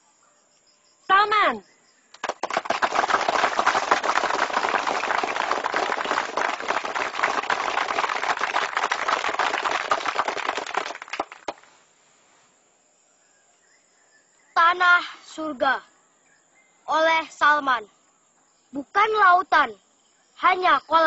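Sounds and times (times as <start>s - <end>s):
audience applauding: 2.2s - 11.7s.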